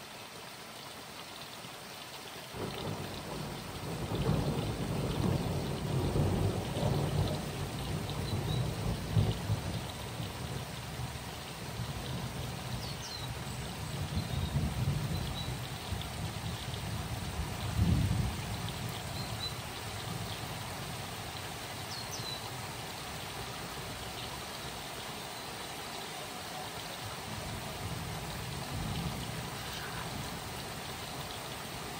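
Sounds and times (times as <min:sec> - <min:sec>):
rain hissing: 0:00.0 - 0:31.9
low thunder rumbling: 0:02.6 - 0:10.7, 0:13.8 - 0:20.5, 0:27.2 - 0:30.5.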